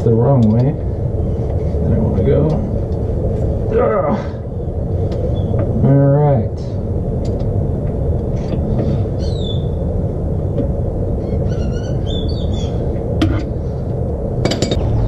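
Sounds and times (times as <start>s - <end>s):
low rumble: 0.0s - 15.0s
small birds chirping: 4.5s - 5.8s, 9.0s - 9.8s, 11.2s - 13.0s.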